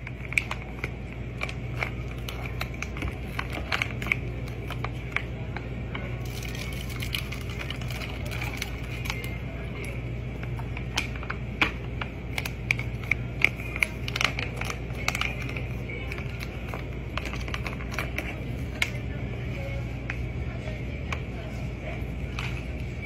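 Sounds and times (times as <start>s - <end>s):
steady low hum: 0.0s - 23.0s
plastic pouch crinkling: 6.2s - 10.0s, 12.3s - 19.0s.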